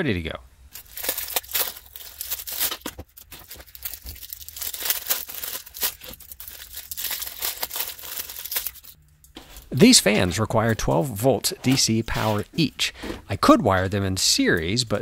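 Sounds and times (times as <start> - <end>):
plastic bags crinkling and tearing: 0.7 - 9.0.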